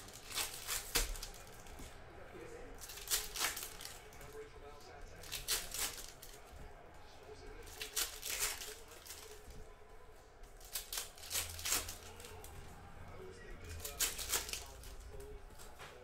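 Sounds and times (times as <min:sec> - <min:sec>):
foil wrapper crinkling: 0:00.0 - 0:01.8, 0:02.8 - 0:04.4, 0:05.2 - 0:06.5, 0:07.6 - 0:09.4, 0:10.6 - 0:12.5, 0:13.7 - 0:15.7.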